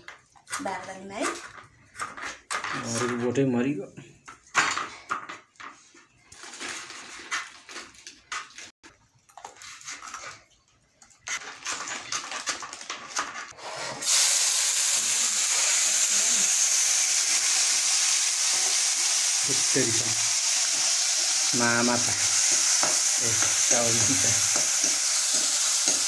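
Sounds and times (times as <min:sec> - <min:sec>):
food sizzling in hot oil: 0:14.0 - 0:26.0.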